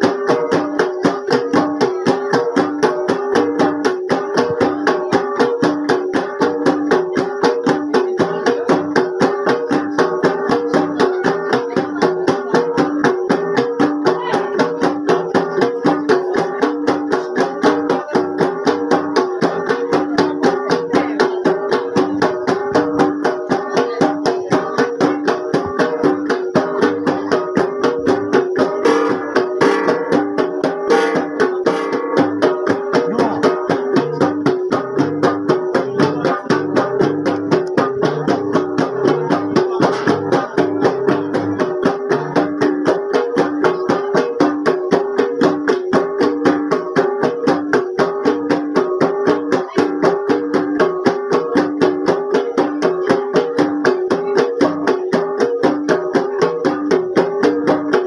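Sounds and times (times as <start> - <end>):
bronze gongs struck with palms: 12.7 - 58.0.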